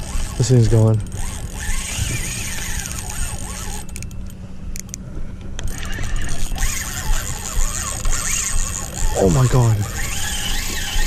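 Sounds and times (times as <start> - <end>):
fishing reel drag buzzing: 0.0 - 4.3, 5.6 - 11.0.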